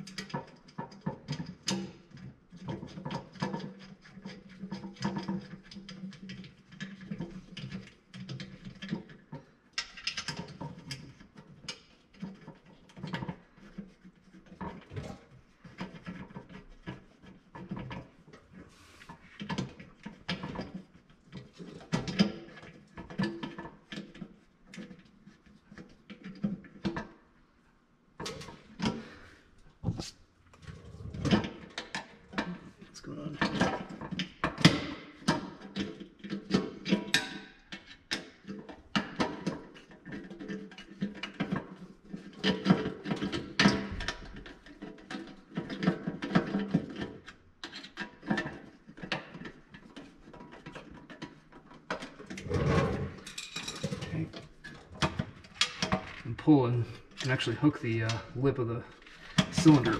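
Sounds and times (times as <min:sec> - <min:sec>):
clicks and knocks on metal fittings: 0:00.0 - 0:18.5.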